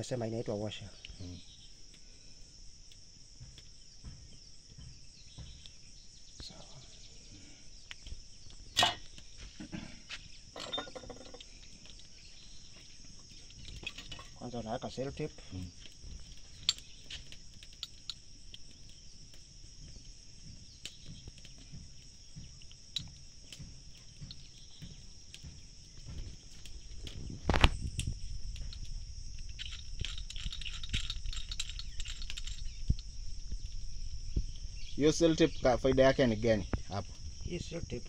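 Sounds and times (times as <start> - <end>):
insect chirring: 0.0 - 38.0
handling clicks and rustles: 22.9 - 33.9.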